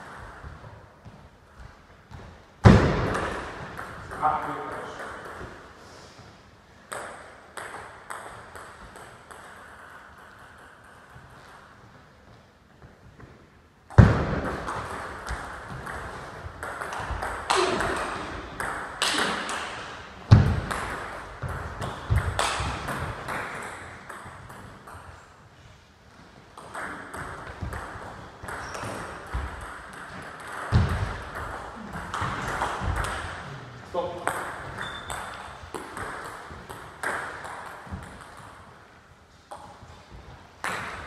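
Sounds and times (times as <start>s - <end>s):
ping pong ball clicking off bats: 6.9s - 11.7s, 14.4s - 25.1s, 26.6s - 33.4s, 34.1s - 38.8s, 40.6s - 41.0s
heavier thumps: 20.2s - 23.2s, 30.7s - 33.4s
ball bouncing on table: 26.6s - 33.4s, 34.2s - 38.7s.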